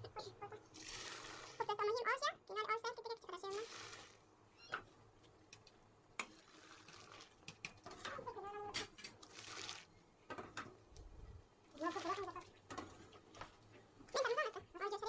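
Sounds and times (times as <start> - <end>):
liquid sloshing: 6.2 - 7.6, 9.2 - 9.9, 11.7 - 13.6.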